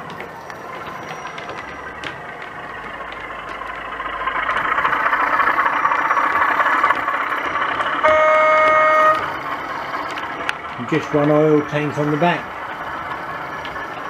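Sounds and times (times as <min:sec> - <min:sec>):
model diesel locomotive engine: 0:00.0 - 0:14.0
wheel running noise: 0:00.0 - 0:14.0
locomotive horn blast: 0:07.9 - 0:09.4.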